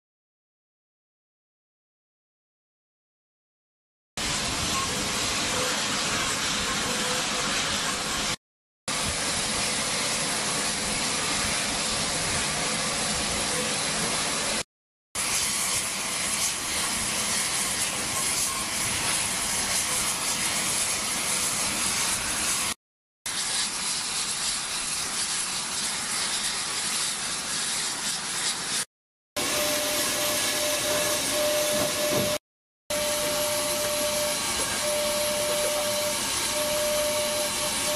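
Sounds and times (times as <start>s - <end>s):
thin high whine: 29.4s - 37.9s.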